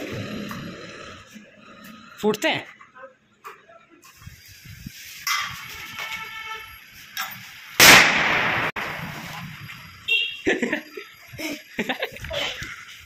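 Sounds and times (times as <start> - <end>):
firecracker bang: 7.8 - 9.6.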